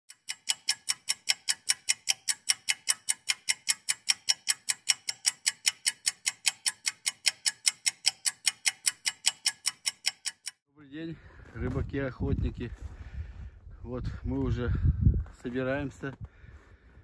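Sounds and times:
rapid even ticking: 0.1s - 10.6s.

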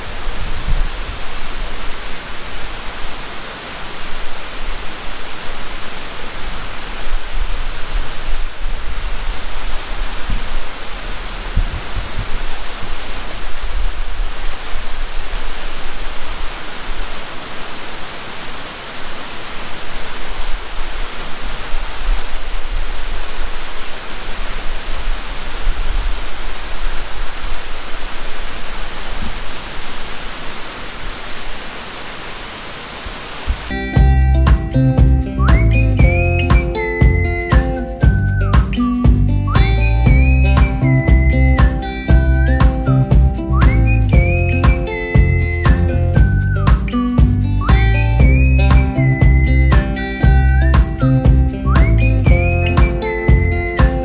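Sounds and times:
waterfall rushing: 0.0s - 54.0s
low rumble: 39.1s - 46.6s.

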